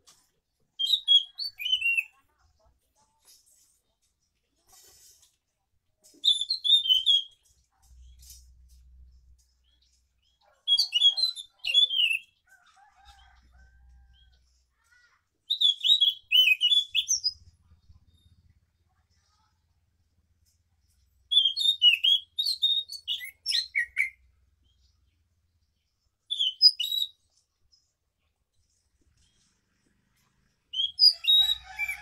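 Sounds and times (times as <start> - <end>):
bird singing warbling phrases: 0.8 - 2.3, 6.1 - 8.3, 9.7 - 12.4, 14.9 - 18.4, 21.3 - 24.9, 26.3 - 27.2, 30.7 - 32.0.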